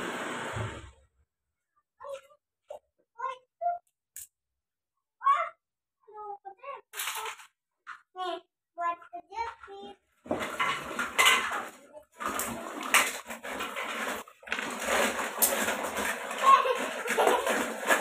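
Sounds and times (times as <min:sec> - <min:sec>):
dishes and cutlery clinking: 0:10.4 - 0:11.7.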